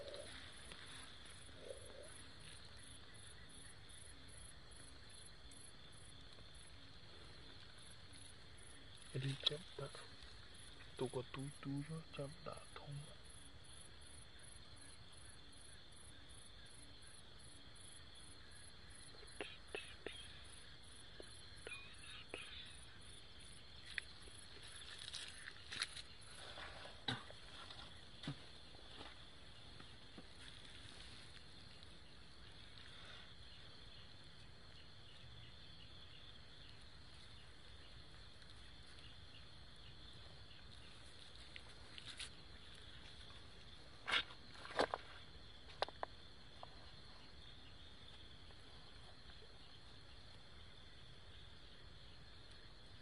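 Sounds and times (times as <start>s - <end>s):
faint outdoor hiss: 0.0s - 53.0s
insects chirping: 0.0s - 53.0s.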